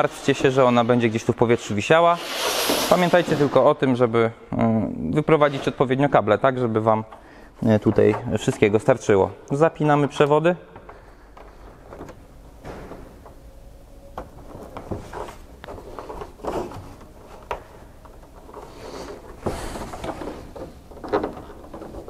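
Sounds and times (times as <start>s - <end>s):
scraping rustle: 14.5s - 22.0s.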